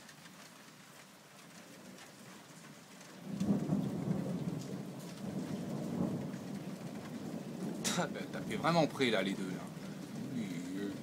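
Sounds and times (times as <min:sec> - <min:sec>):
steady rain: 0:00.0 - 0:11.0
thunder rumble: 0:03.2 - 0:11.0.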